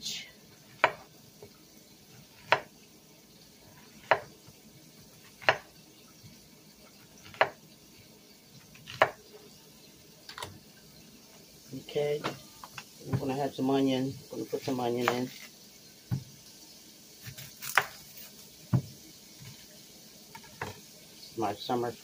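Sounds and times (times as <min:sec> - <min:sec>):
knife chopping on wooden board: 0:00.7 - 0:01.1, 0:02.4 - 0:02.7, 0:03.9 - 0:04.3, 0:05.4 - 0:05.7, 0:07.2 - 0:07.6, 0:08.8 - 0:09.2, 0:16.1 - 0:16.3, 0:17.2 - 0:19.6.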